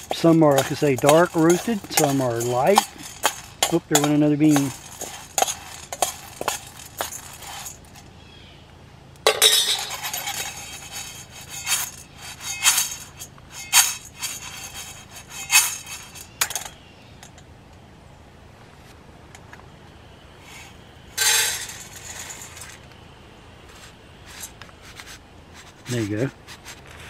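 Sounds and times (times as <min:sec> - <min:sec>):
beans rattling in shaken pan: 0:00.0 - 0:08.0, 0:09.4 - 0:16.7, 0:21.2 - 0:22.8
spoon stirring coffee beans: 0:00.0 - 0:08.0, 0:09.3 - 0:16.8.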